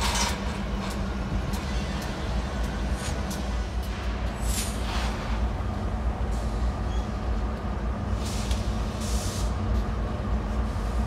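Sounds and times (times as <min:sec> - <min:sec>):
diesel locomotives rumbling: 0:00.0 - 0:11.0
short air hisses: 0:08.2 - 0:09.6.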